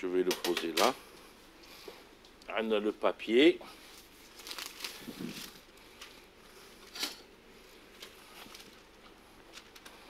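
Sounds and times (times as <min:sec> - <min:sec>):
baking paper rustling: 0:03.7 - 0:06.2, 0:07.8 - 0:10.0
paper crackle: 0:03.9 - 0:06.2, 0:07.9 - 0:10.0.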